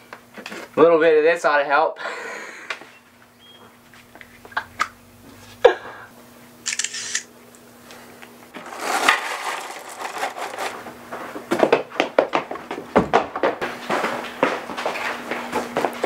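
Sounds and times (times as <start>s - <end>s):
faint steady hum: 0.0s - 12.5s
rustling: 8.5s - 10.8s.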